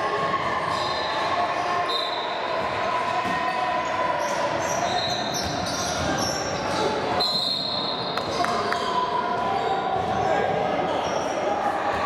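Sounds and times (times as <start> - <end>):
crowd and players' voices: 0.0 - 12.0
sneakers squeaking on floor: 0.6 - 2.4, 4.2 - 12.0.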